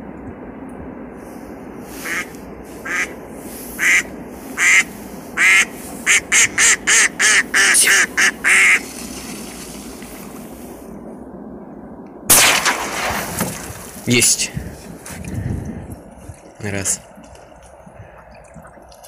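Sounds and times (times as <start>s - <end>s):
duck quacking loudly: 2.0s - 3.1s, 3.8s - 8.8s.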